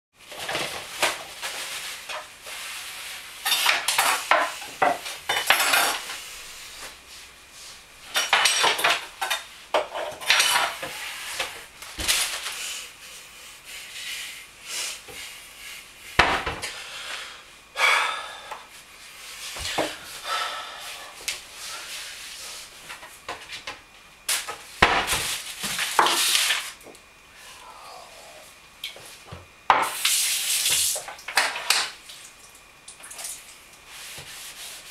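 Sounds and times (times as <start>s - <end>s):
dishes and cutlery clattering: 3.4s - 6.0s, 8.1s - 10.8s.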